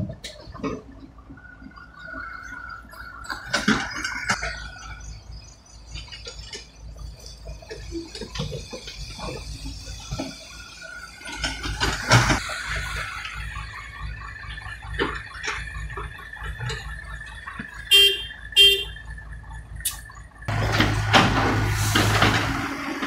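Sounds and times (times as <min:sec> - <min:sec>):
excavator diesel engine: 0:00.0 - 0:23.0
loud crash: 0:20.5 - 0:23.0.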